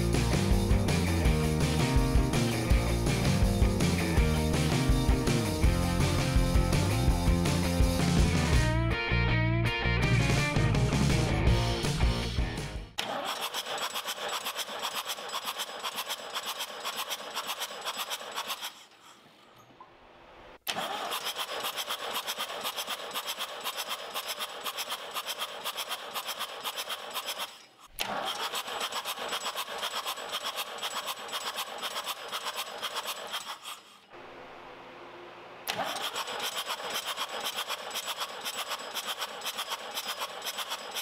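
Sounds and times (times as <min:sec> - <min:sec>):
diesel engine cranking on starter: 0:13.0 - 0:18.8, 0:20.6 - 0:33.9, 0:35.6 - 0:41.0.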